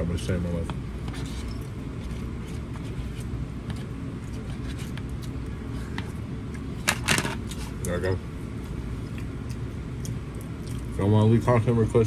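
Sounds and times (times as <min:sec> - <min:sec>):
low background hum: 0:00.0 - 0:12.0
person eating: 0:08.7 - 0:11.0.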